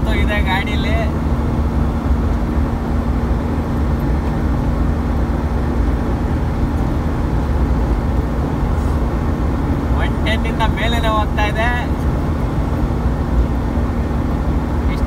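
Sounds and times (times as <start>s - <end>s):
car engine drone: 0.0s - 15.0s
road and wind noise: 0.0s - 15.0s.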